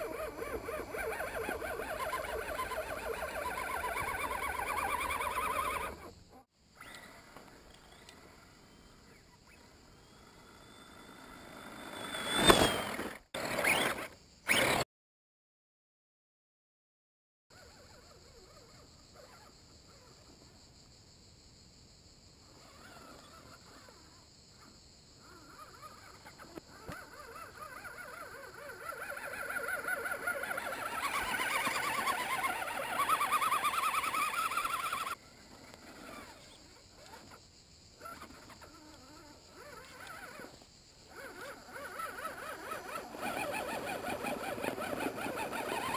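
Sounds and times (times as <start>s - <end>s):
electric motor and gears whining: 10.0s - 14.8s, 41.2s - 45.9s
electric motor whining: 38.9s - 45.9s.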